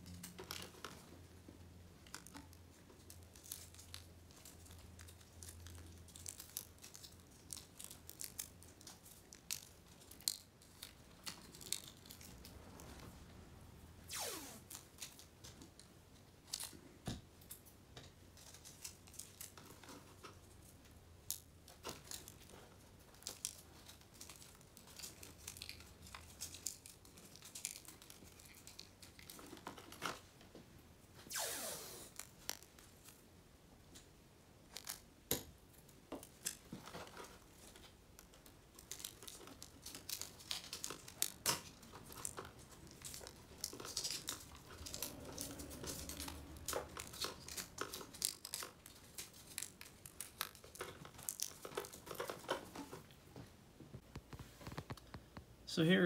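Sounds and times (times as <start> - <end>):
tape rustling and clicking: 0.0 - 13.3, 14.1 - 31.4, 32.1 - 55.5
tape peeling screech: 14.0 - 14.8, 31.3 - 32.3.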